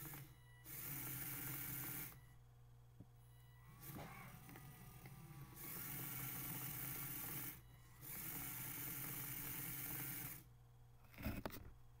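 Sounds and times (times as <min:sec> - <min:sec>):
robot drive motors whining: 0:03.4 - 0:10.5.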